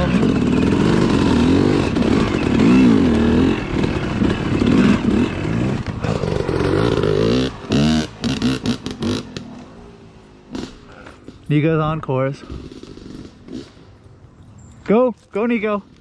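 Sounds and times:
dirt bike engine revving: 0:00.0 - 0:09.6, 0:12.4 - 0:14.0.

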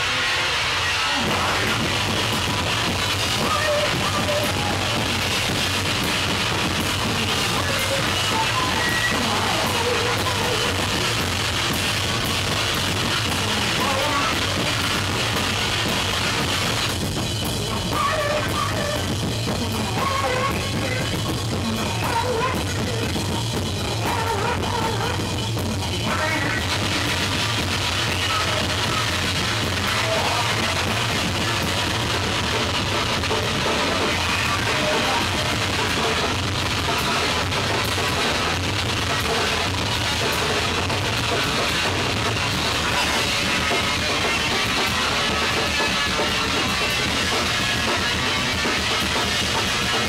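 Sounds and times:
distorted bass guitar: 0:00.0 - 0:50.0
drum kit played hard: 0:00.0 - 0:50.0.

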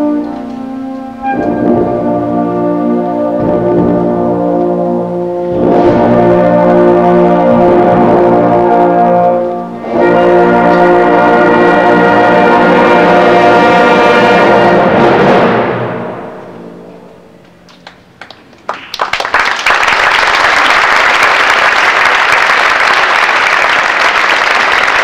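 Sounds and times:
audience applause: 0:17.7 - 0:25.0.

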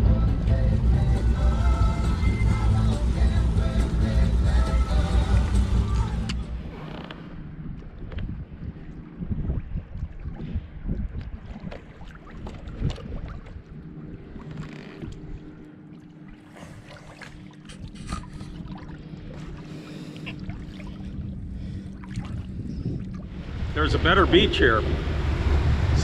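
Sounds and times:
steady low hum: 0:00.0 - 0:26.0
water lapping against hull: 0:01.4 - 0:26.0
wind buffeting microphone: 0:07.4 - 0:14.5, 0:21.0 - 0:26.0.

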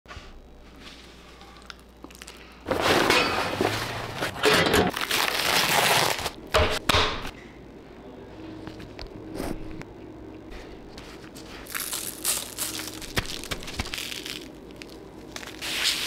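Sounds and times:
plastic wrap tearing: 0:04.9 - 0:06.4, 0:11.7 - 0:16.0.

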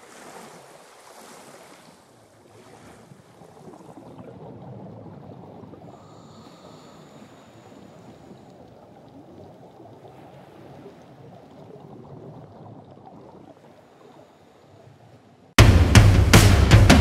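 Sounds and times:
muffled underwater water sound: 0:00.0 - 0:15.6
loud music with heavy drums: 0:15.6 - 0:17.0.

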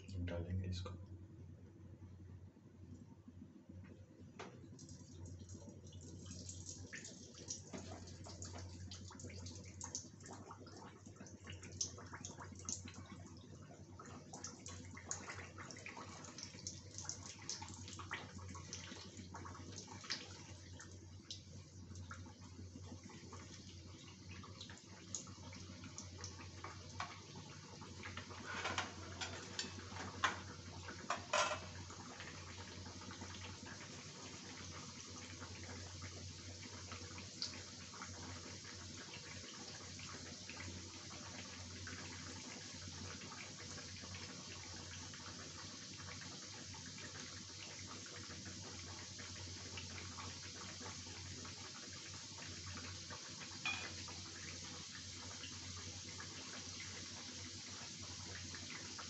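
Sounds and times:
food deep-frying in oil: 0:04.0 - 0:59.0.

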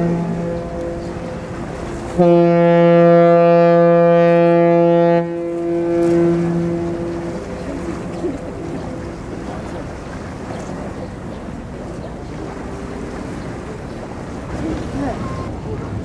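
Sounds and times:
ship whistle deep blast: 0:00.0 - 0:08.1.

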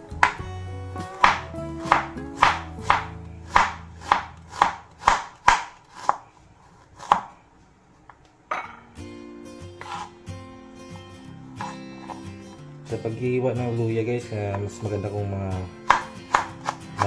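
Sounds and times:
faint background music: 0:00.0 - 0:17.0
knife slicing on cutting board: 0:01.2 - 0:07.3, 0:09.8 - 0:10.2, 0:11.6 - 0:12.3.

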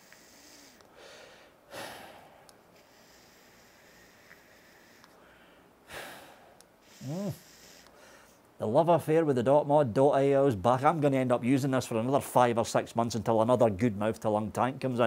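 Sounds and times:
faint draw through vape device: 0:00.0 - 0:00.9, 0:02.7 - 0:05.2, 0:06.8 - 0:08.4
breath out: 0:00.0 - 0:08.4
sharp breath in: 0:00.0 - 0:08.4.

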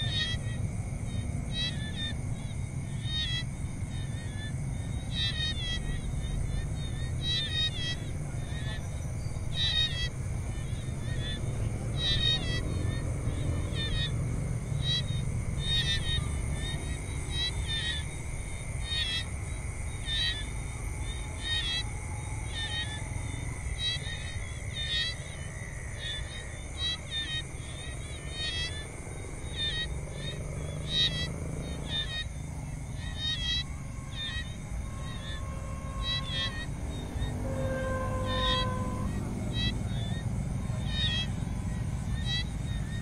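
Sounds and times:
insects droning: 0:00.0 - 0:43.0
short chirping calls: 0:29.5 - 0:32.3, 0:33.0 - 0:43.0.

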